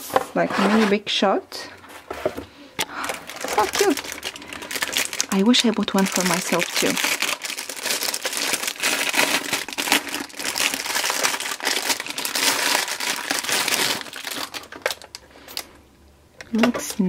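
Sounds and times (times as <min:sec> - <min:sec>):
plastic wrapping crinkling: 0:02.8 - 0:15.8.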